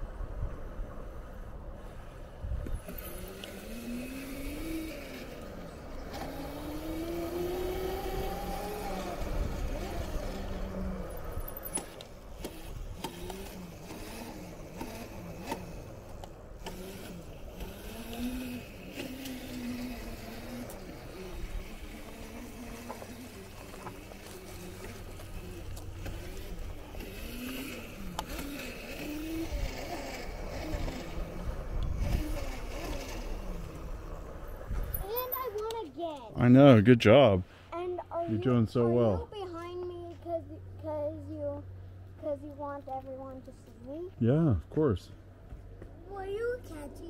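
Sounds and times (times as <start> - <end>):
small electric motor whining: 2.6 - 35.6
rumbling wind noise: 29.1 - 35.0.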